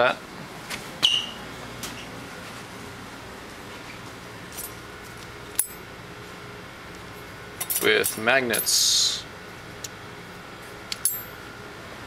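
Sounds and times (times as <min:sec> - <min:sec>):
steady room hum: 0:00.0 - 0:12.0.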